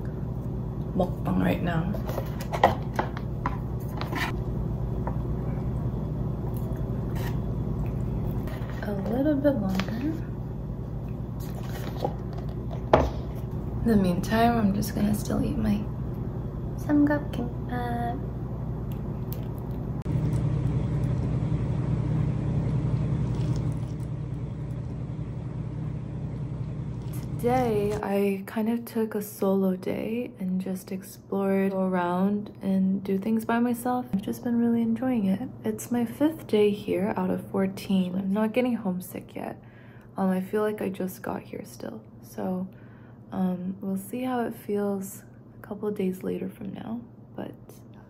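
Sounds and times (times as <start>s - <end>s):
steady low hum: 0.0s - 48.0s
paper lid rustles: 11.4s - 13.4s.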